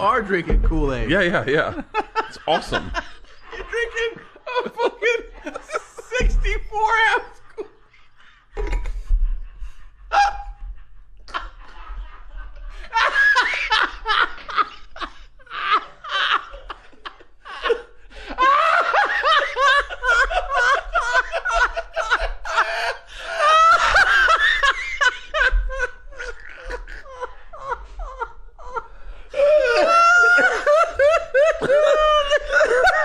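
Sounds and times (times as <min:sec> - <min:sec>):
men laughing: 0:00.0 - 0:33.0.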